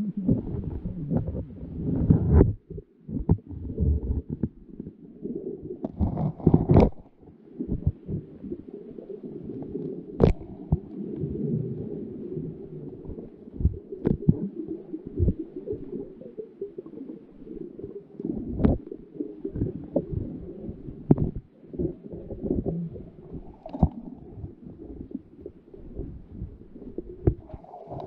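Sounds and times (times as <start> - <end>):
muffled underwater rubbing on camera: 0.0 - 4.9, 5.8 - 7.2.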